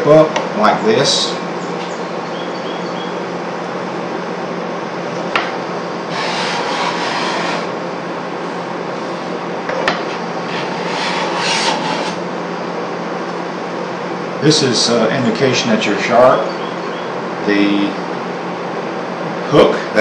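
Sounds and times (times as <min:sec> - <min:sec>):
hand scraper scraping wood: 0:06.1 - 0:07.8, 0:10.0 - 0:12.2.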